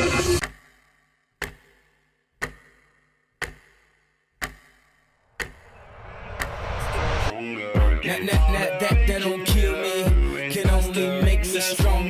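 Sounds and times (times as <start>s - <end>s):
clock tick with thump and ring: 0.4s - 7.2s
rising swell of noise: 5.5s - 7.5s.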